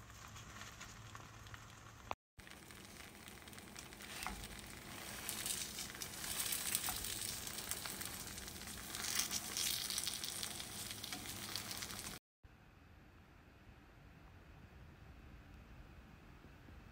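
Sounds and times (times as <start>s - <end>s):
omelette sizzling in a pan: 0.0s - 12.2s.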